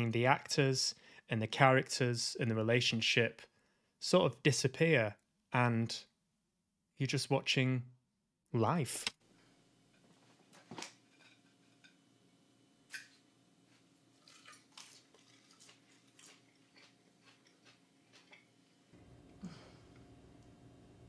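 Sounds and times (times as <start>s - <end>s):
soft chewing: 13.7s - 20.5s.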